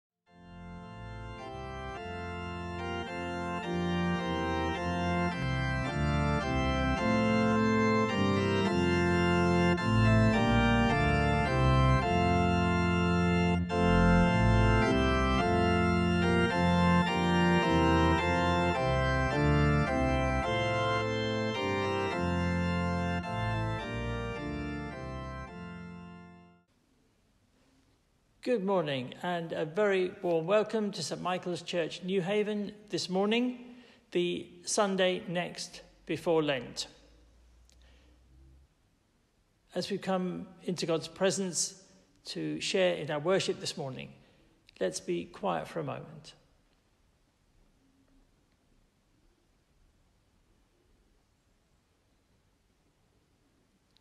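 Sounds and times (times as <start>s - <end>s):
organ chords: 0.3s - 26.8s, 39.8s - 46.4s.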